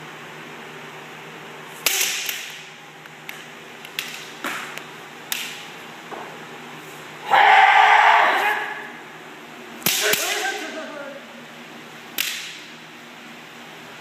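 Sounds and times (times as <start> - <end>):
bamboo swords striking: 1.8 - 2.7, 9.8 - 10.6, 12.2 - 12.7.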